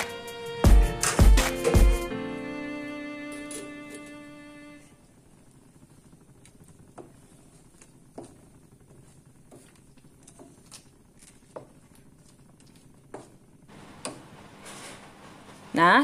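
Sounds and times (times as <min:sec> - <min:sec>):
wooden spatula scraping a wok: 0:06.8 - 0:10.7, 0:14.5 - 0:15.5.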